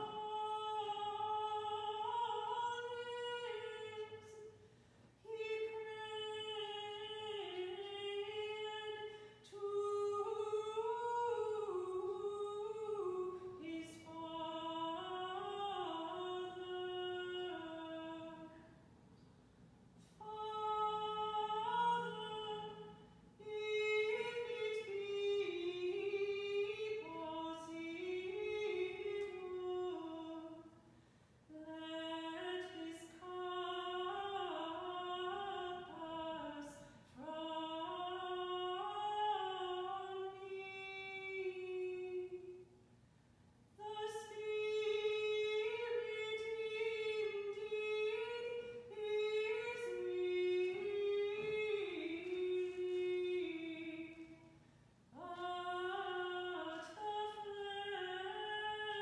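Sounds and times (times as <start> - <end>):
woman singing chant: 0.0 - 4.6, 5.2 - 18.7, 20.1 - 30.8, 31.5 - 42.7, 43.8 - 59.0.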